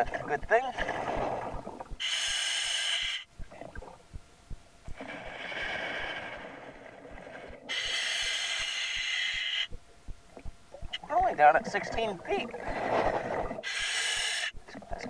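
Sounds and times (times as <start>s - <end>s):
exhaled bubbles rushing: 0.8s - 2.0s, 11.6s - 13.6s.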